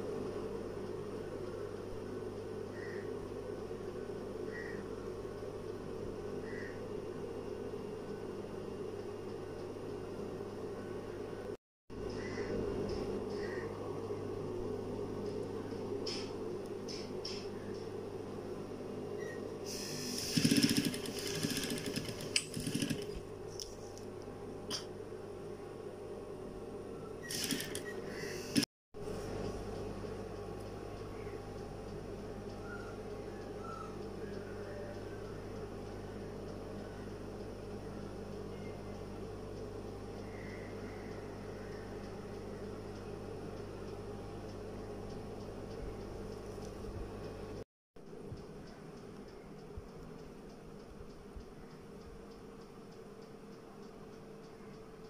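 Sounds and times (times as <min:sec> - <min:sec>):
steady hum: 0:00.0 - 0:55.0
sewing machine stitching: 0:20.0 - 0:23.2, 0:27.2 - 0:28.6.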